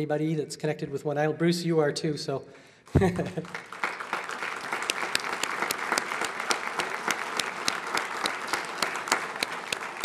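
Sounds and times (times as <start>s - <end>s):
audience applauding: 3.2s - 10.0s
sharp claps close by: 3.4s - 10.0s.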